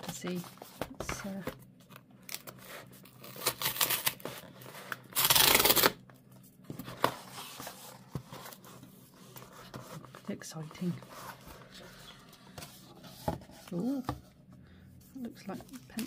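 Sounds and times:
cardboard rustling and scraping: 0.0 - 1.6, 6.4 - 14.4
cardboard tear strip ripping: 3.2 - 4.4, 5.1 - 6.0.

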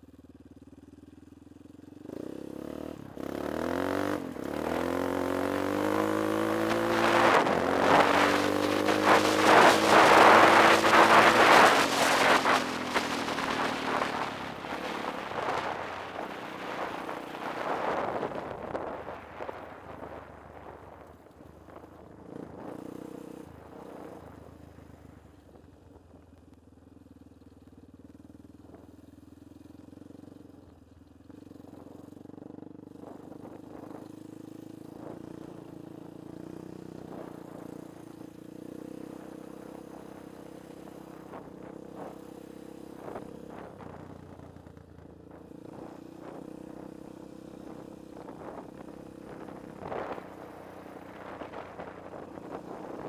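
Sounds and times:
quad engine running: 0.0 - 53.0
knocks and clatter over ruts: 3.6 - 24.3.

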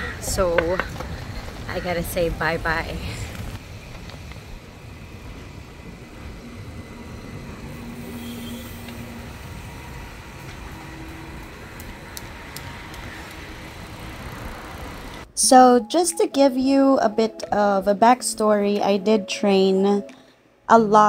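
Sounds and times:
road traffic noise: 0.0 - 15.3.

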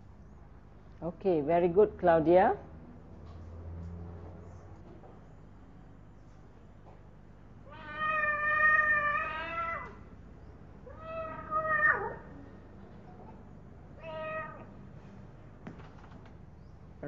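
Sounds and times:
cat meowing over speaker: 7.7 - 10.0, 10.9 - 12.3, 14.0 - 14.7.

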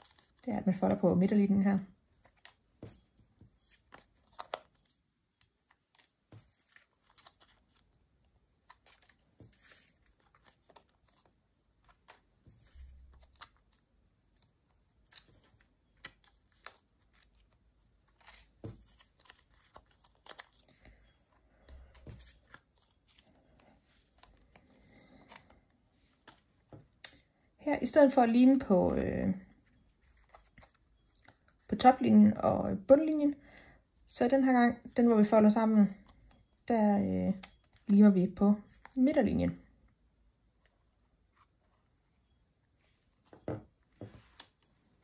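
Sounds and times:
paper rustling and creasing: 0.0 - 1.1, 2.0 - 27.0, 29.5 - 31.8, 42.8 - 45.0.

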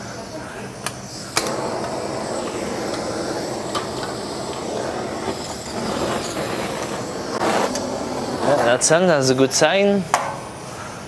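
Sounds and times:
gas burner flame rushing: 1.1 - 9.9.

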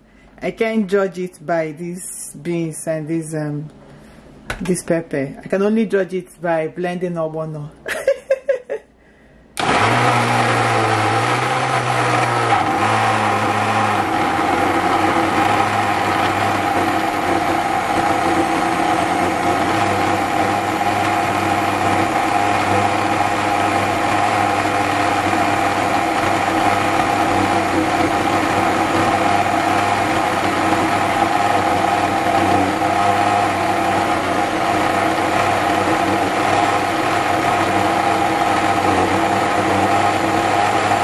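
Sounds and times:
blender motor whirring: 9.6 - 41.0.

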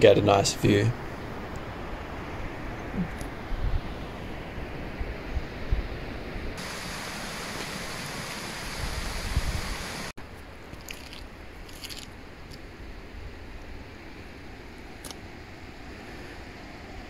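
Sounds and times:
wind rushing hiss: 6.6 - 10.1
wind buffeting microphone: 7.9 - 10.1.

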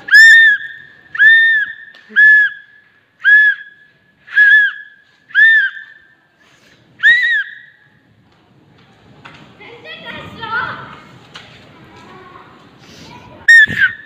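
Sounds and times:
shrill whistle blasts: 0.0 - 6.2, 7.0 - 8.0, 13.5 - 14.0.

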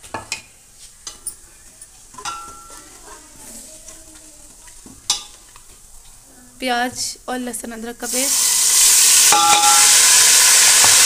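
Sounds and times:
seeds sizzling in hot oil: 8.0 - 11.0
ladle clinking against pot: 9.3 - 9.9.

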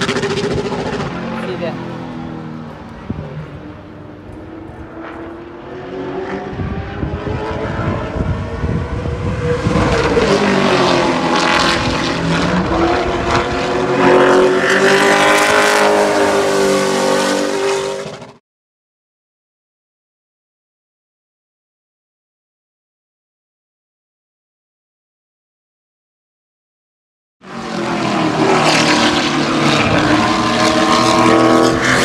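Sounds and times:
race car engine at speed: 0.0 - 18.4, 27.4 - 32.0.

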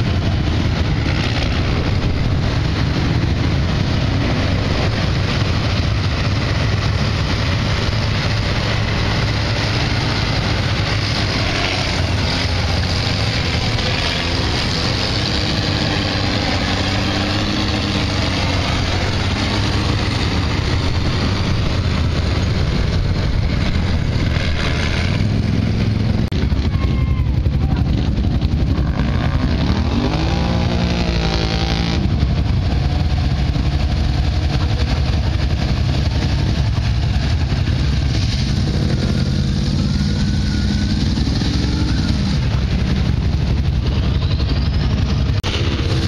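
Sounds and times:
truck engines revving: 0.0 - 46.0.

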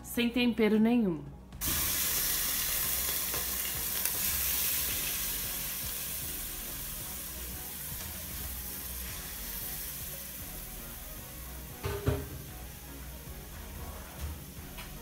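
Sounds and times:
meat sizzling in hot oil: 1.6 - 11.5.

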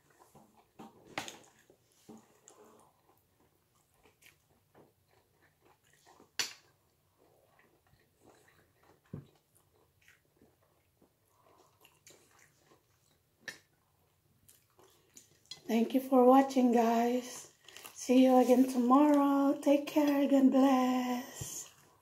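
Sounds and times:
person chewing food: 0.0 - 15.7, 17.5 - 18.0.

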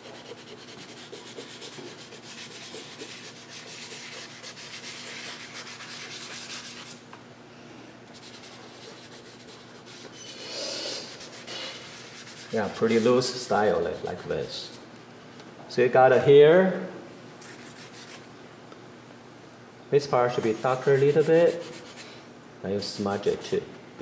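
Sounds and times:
charcoal scratching on paper: 0.0 - 7.0, 8.1 - 14.8, 17.4 - 18.2, 20.3 - 22.1, 22.8 - 23.6.

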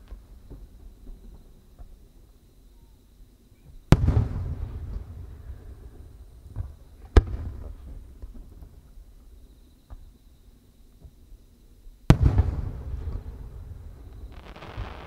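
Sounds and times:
firework shells bursting: 14.1 - 15.0.

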